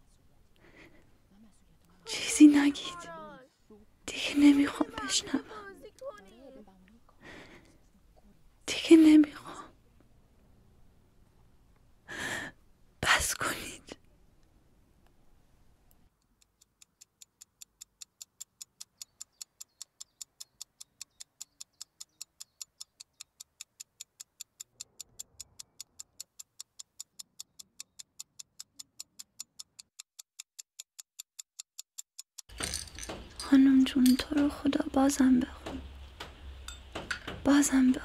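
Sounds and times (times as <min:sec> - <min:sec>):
clock ticking: 0:16.3 - 0:32.6.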